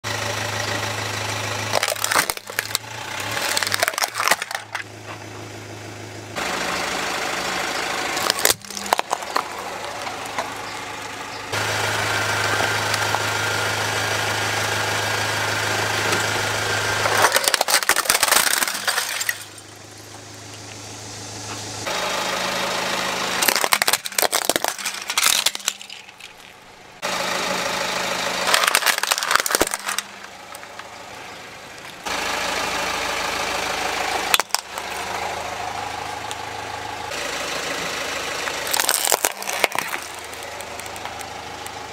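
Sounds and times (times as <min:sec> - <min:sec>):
car engine idling: 0:00.0 - 0:41.9
plastic toys crunching under tyre: 0:01.6 - 0:04.9, 0:08.1 - 0:11.6, 0:17.0 - 0:19.8, 0:23.4 - 0:26.8, 0:28.4 - 0:31.0, 0:34.2 - 0:35.3, 0:38.4 - 0:41.8.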